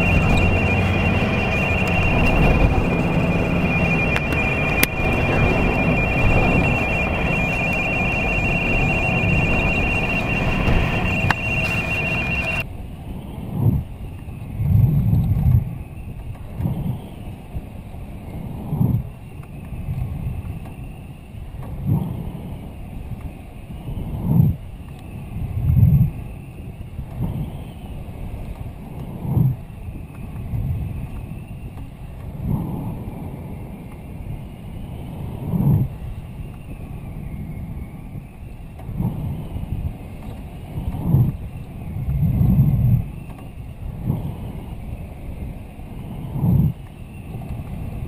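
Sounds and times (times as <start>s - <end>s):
low rumble: 0.0s - 12.6s
pulsing electronic tone: 0.0s - 12.6s.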